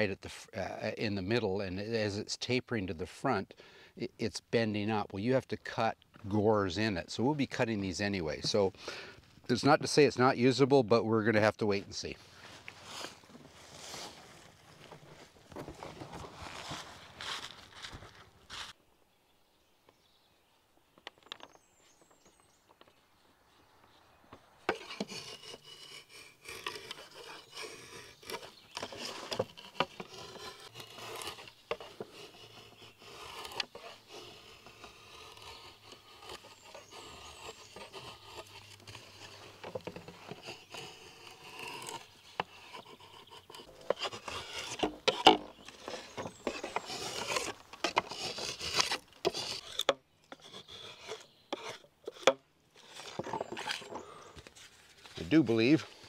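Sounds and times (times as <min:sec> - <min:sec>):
drawknife scraping wood: 0:07.1 - 0:09.1, 0:12.4 - 0:18.8, 0:24.7 - 0:56.0.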